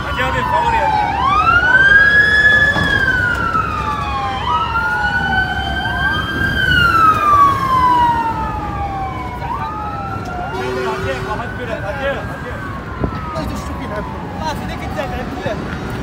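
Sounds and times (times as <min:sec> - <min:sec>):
emergency siren wailing: 0:00.0 - 0:16.0
low traffic noise: 0:00.0 - 0:16.0
second siren wail: 0:00.0 - 0:16.0.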